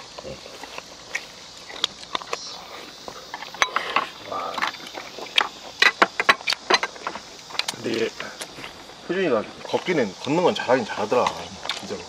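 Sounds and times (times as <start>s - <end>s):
chewing: 0.0s - 12.0s.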